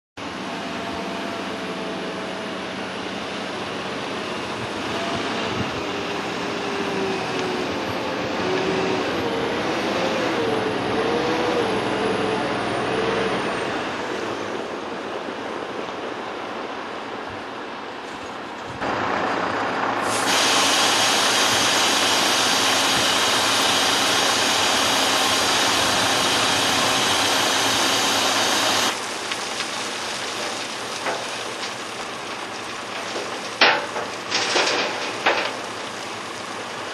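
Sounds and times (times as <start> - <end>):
loud steady rushing noise: 13.8 - 29.0
tyres on gravel: 18.0 - 36.9
truck diesel engine running: 18.4 - 36.9.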